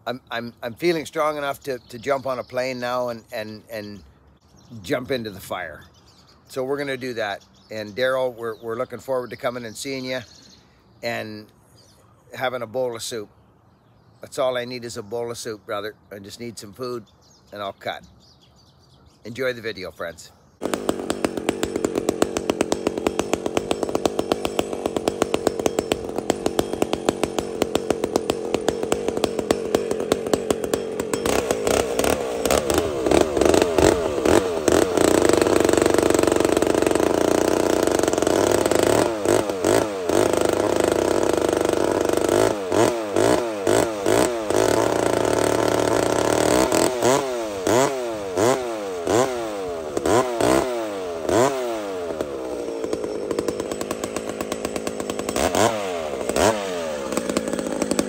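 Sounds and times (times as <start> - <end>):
chainsaw engine idling and revving: 0.0 - 5.8, 6.6 - 11.6, 20.6 - 58.0
chainsaw cutting into log: 20.6 - 58.0.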